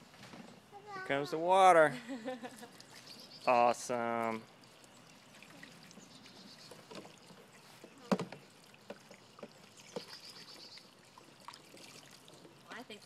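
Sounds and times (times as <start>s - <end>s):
water pouring and splashing: 2.6s - 13.0s.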